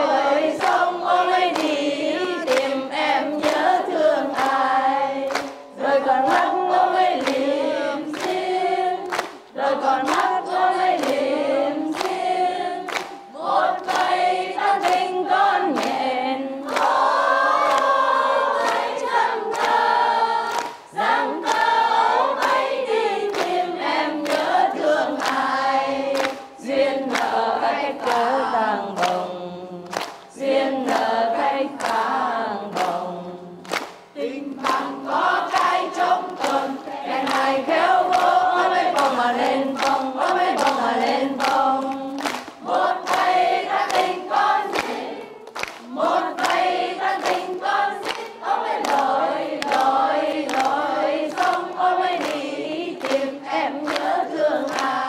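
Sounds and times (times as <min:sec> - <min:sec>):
crowd singing: 0:00.0 - 0:55.0
hands clapping on the beat: 0:00.0 - 0:55.0.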